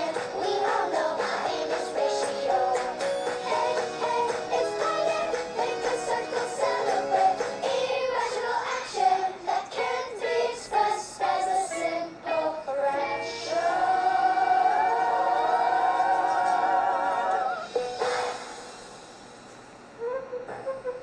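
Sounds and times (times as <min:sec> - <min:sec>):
person singing with vibrato: 0:00.0 - 0:18.8.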